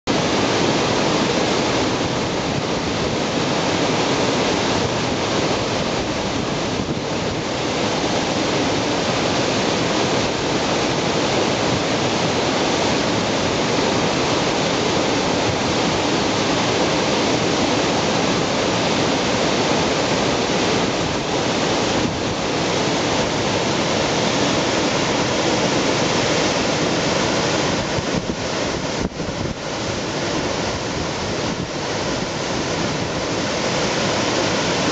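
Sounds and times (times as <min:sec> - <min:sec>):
water rushing over weir: 0:00.1 - 0:34.9.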